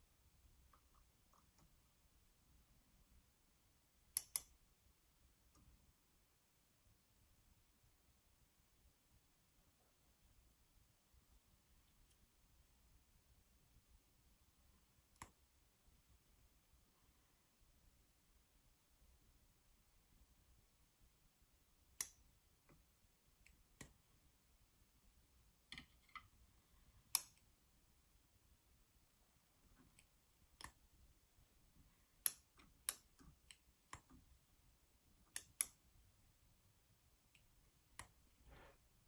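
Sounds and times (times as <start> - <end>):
needle holder clicking: 4.2 - 4.6, 27.1 - 27.5, 32.2 - 34.2, 35.3 - 35.8.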